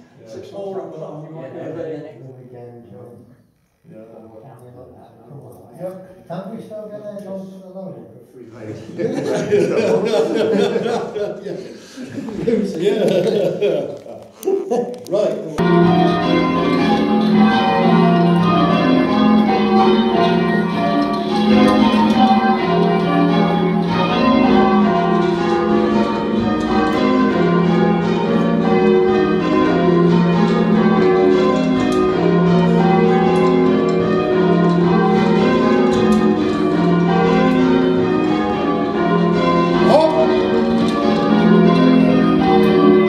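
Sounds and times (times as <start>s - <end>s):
church bells ringing: 8.9s - 14.0s, 15.6s - 43.0s.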